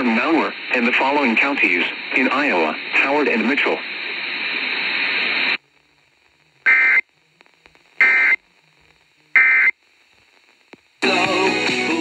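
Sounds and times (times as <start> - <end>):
radio static hiss: 0.0 - 12.0
buzzy data bursts: 6.6 - 7.0, 8.0 - 8.4, 9.3 - 9.8.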